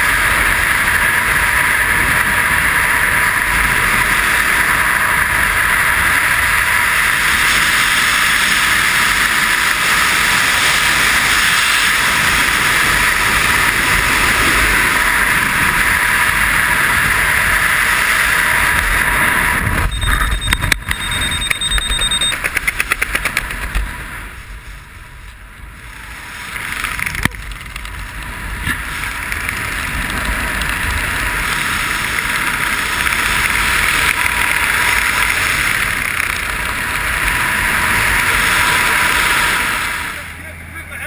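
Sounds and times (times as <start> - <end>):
wind rushing over microphone: 0.0 - 40.7
high steady tone: 19.8 - 22.6.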